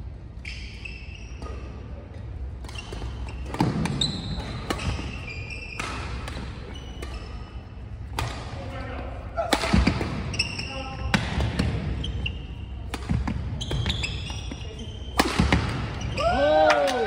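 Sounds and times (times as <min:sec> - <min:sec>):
rackets hitting shuttlecock: 0:02.6 - 0:08.6, 0:09.4 - 0:10.4, 0:12.8 - 0:17.0
shoes squeaking on wooden floor: 0:13.6 - 0:15.1.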